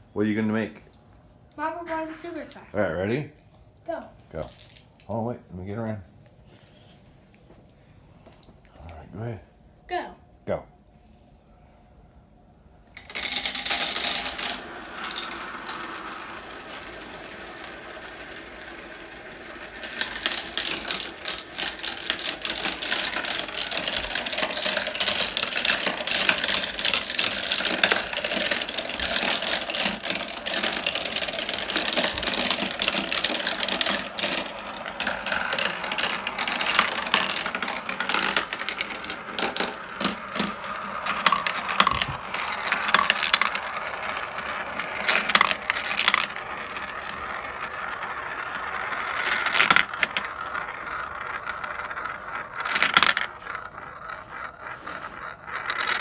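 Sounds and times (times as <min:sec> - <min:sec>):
marbles rolling through plastic run: 0:12.9 - 0:56.0.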